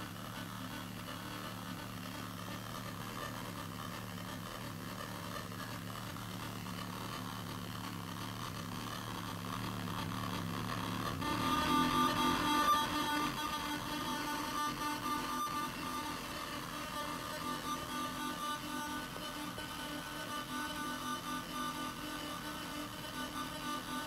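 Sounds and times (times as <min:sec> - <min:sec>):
electronic drone of held tones: 0:00.0 - 0:24.0.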